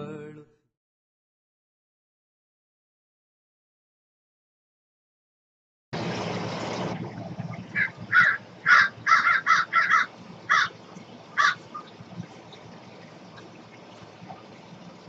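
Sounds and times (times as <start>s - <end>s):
bird calling: 7.7s - 14.1s.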